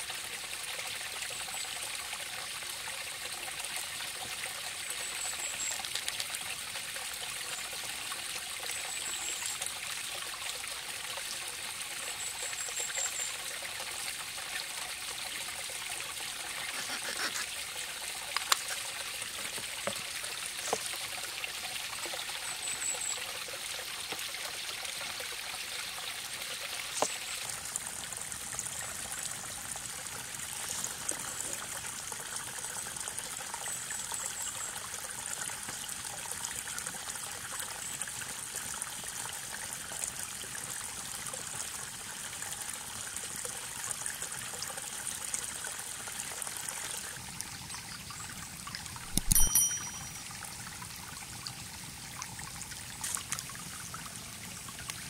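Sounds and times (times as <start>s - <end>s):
stream trickling: 0.0s - 55.0s
short high chirps: 49.1s - 50.3s.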